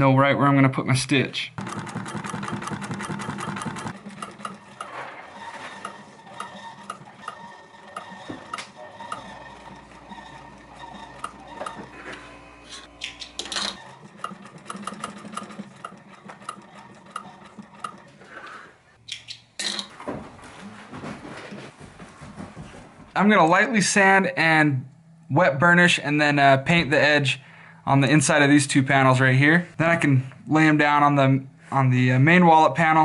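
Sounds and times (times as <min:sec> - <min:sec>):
sewing machine stitching leather: 0:01.6 - 0:18.6.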